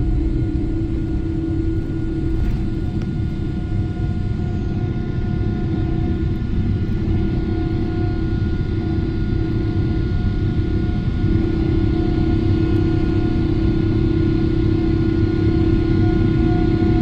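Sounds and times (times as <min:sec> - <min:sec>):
jet engines at takeoff in cabin: 0:00.0 - 0:17.0.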